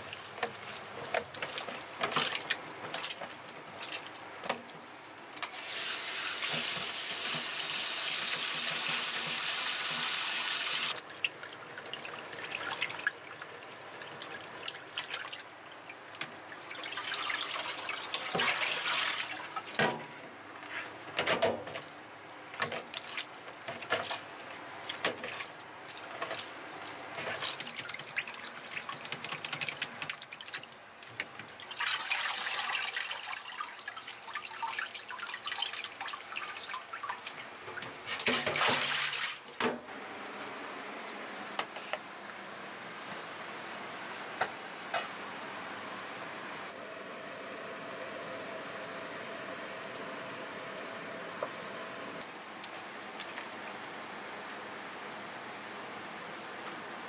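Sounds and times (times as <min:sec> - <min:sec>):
wet rubbing and splashing: 0:00.0 - 0:04.7, 0:22.7 - 0:30.8
tap water running into sink: 0:05.5 - 0:11.0.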